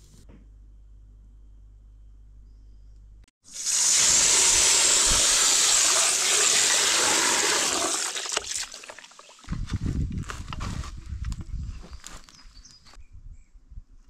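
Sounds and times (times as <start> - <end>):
water rushing and splashing: 3.6 - 9.5.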